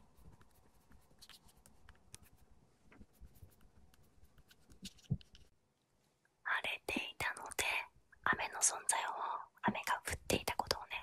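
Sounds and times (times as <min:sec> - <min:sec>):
chalk scratching on blackboard: 0:00.0 - 0:02.4, 0:03.0 - 0:05.3.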